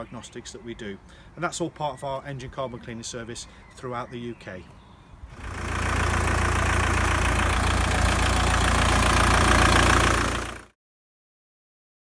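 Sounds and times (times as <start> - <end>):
diesel engine idling: 5.3 - 10.7.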